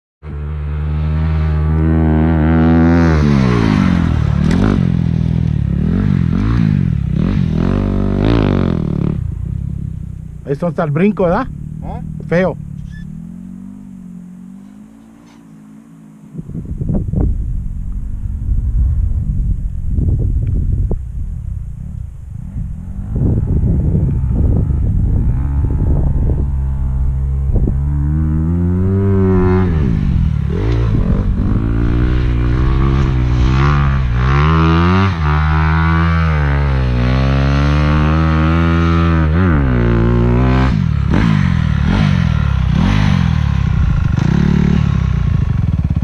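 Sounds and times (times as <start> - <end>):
dirt bike engine revving: 0.2 - 17.3, 22.5 - 46.0.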